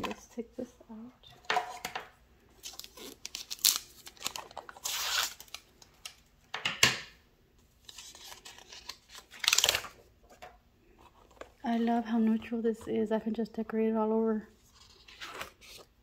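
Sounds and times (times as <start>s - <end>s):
plastic wrap crinkling: 2.5s - 6.3s
scissors cutting plastic wrap: 2.6s - 5.6s.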